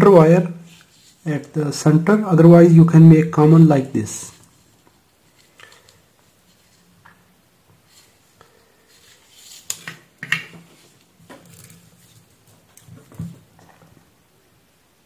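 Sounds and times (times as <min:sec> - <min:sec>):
wires being twisted by hand: 0:08.9 - 0:13.2.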